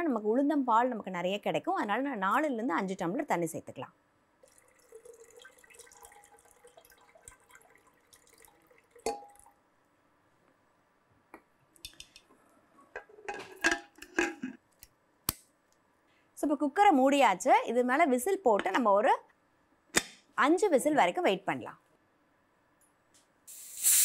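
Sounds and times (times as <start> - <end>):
water trickling into pot: 4.4 - 9.6.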